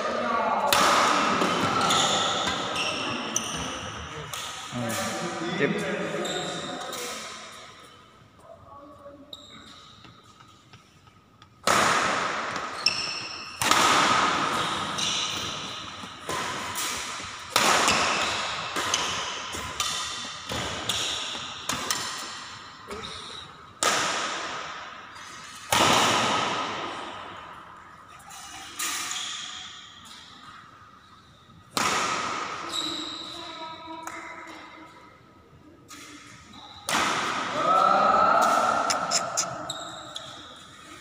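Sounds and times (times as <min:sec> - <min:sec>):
rackets hitting shuttlecock: 0:00.7 - 0:05.2, 0:11.4 - 0:22.6, 0:23.8 - 0:27.1, 0:31.7 - 0:32.7, 0:36.8 - 0:37.7.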